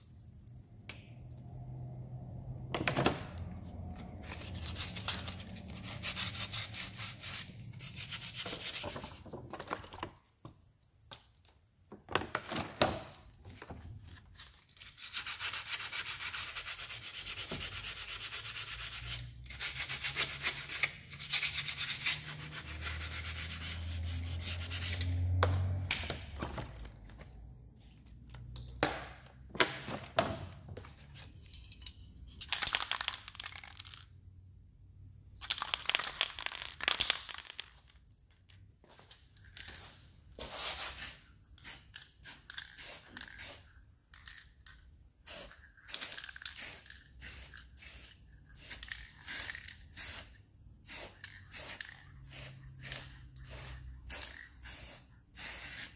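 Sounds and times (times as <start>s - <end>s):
sandpaper scraping metal: 4.6s - 8.9s, 14.8s - 25.2s
spray paint can hissing: 40.6s - 43.7s, 45.2s - 55.9s.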